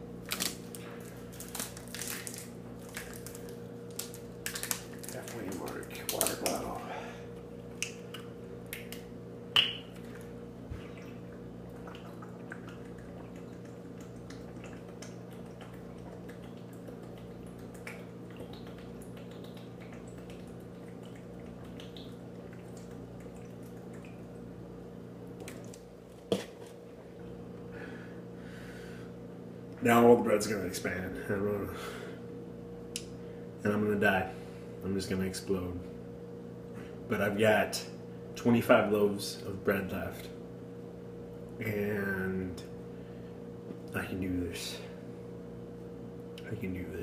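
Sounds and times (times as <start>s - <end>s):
steady low hum: 0.0s - 47.0s
plastic bottle crinkling: 0.2s - 6.6s
man gulping water: 10.0s - 24.5s
swallowing clicks: 10.8s - 24.3s.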